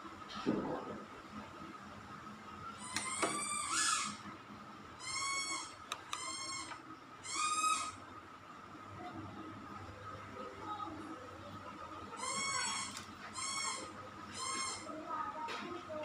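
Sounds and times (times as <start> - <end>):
animal calling: 12.1 - 15.0.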